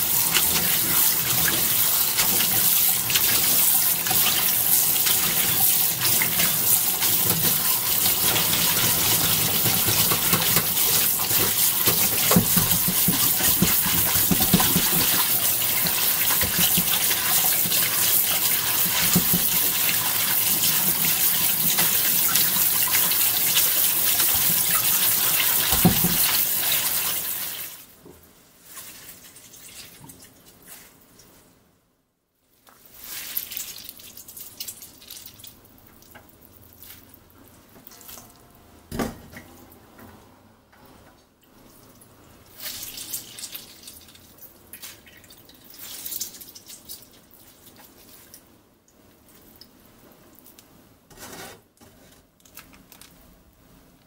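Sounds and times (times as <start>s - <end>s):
hand rubbing noodles in strainer: 0.0s - 27.6s
tap water running: 0.0s - 27.8s.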